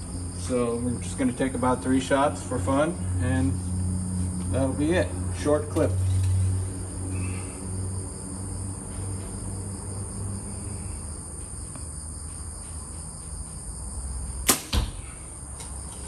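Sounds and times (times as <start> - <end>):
arrow thud into target: 14.4 - 15.1.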